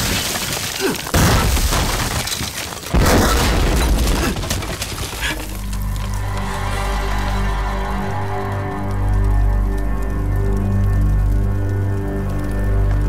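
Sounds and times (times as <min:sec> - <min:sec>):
explosion blasts with debris: 0:00.0 - 0:06.5
low music notes: 0:05.5 - 0:13.0.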